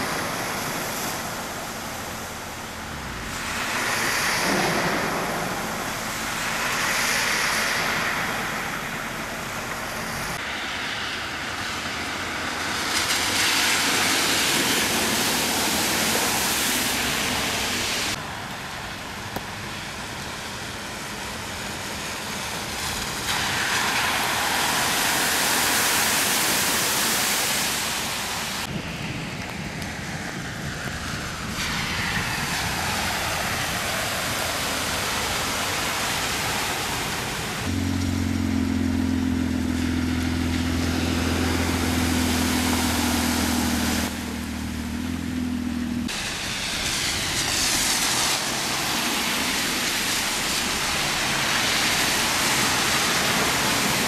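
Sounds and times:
vehicle engine low hum: 0.0s - 13.4s, 28.7s - 54.0s
tyres splashing through water: 0.0s - 28.7s, 31.0s - 54.0s
heavy rain pouring: 0.0s - 54.0s.

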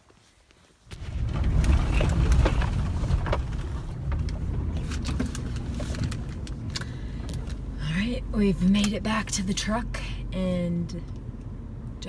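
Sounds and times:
sharp clicks and knocks: 0.9s - 7.6s
truck engine rumble: 0.9s - 12.0s.

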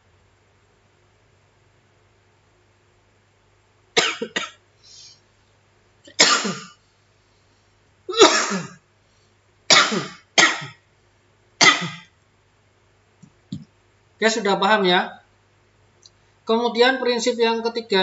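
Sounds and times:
man coughing: 4.0s - 4.6s, 6.1s - 6.8s, 8.1s - 8.8s, 9.7s - 10.8s, 11.6s - 12.1s.

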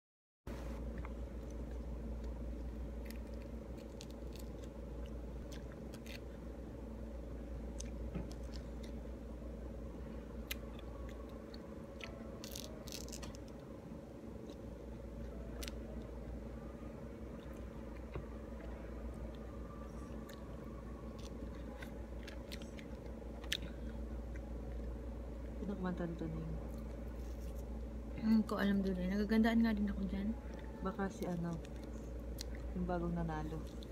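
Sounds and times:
steady low hum: 0.5s - 33.9s
biting and chewing: 0.8s - 6.6s, 7.7s - 9.1s, 10.4s - 13.7s, 17.2s - 25.0s
fruit membrane tearing: 12.0s - 13.6s.

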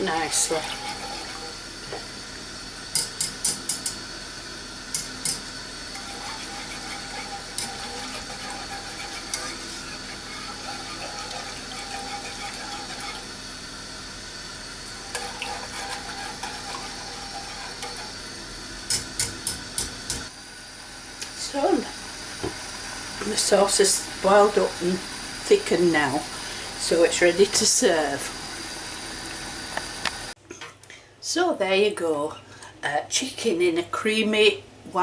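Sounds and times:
whisk stirring sauce in saucepan: 0.0s - 1.6s, 5.9s - 13.4s, 15.0s - 18.2s.

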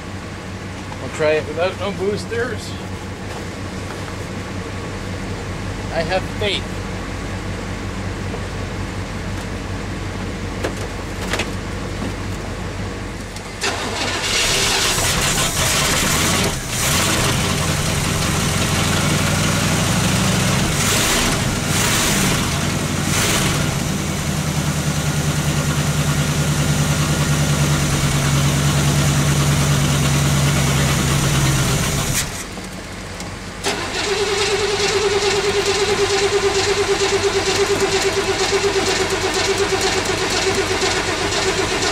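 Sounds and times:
car engine starting and revving: 13.6s - 32.6s, 33.6s - 41.9s.

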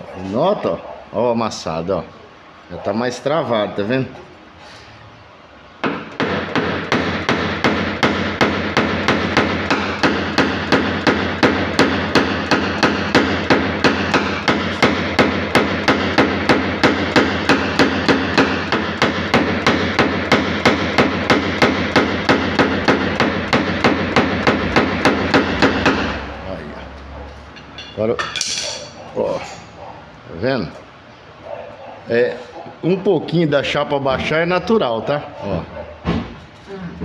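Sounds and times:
hammer tapping punch on sheet metal: 5.8s - 26.3s.

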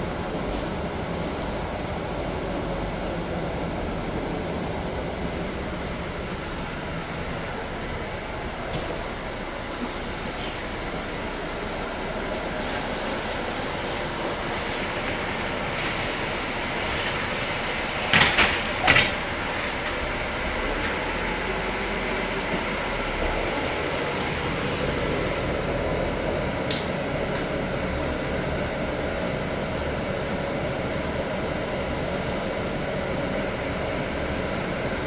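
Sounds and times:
bus running noise: 0.0s - 35.0s
high hiss: 6.3s - 15.1s, 15.7s - 19.5s.

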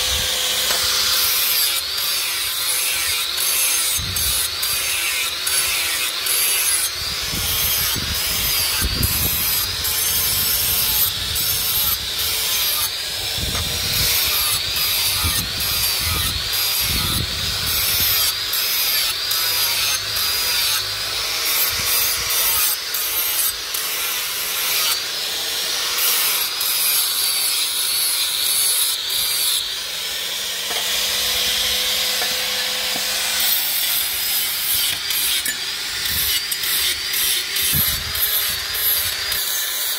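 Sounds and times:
angle grinder grinding steel: 0.0s - 39.9s.

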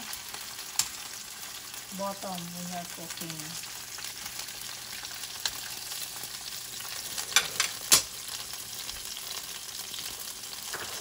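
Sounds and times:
fish sizzling in a skillet: 0.0s - 11.0s
metal tongs clicking on pan: 0.7s - 1.0s, 7.3s - 8.1s.

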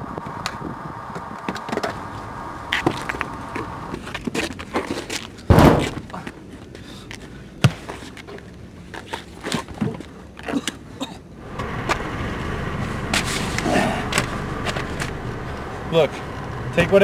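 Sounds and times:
low rumble: 0.0s - 4.2s, 11.4s - 17.0s
sharp knock: 5.5s - 6.0s
heavy thud against car: 5.5s - 6.1s.

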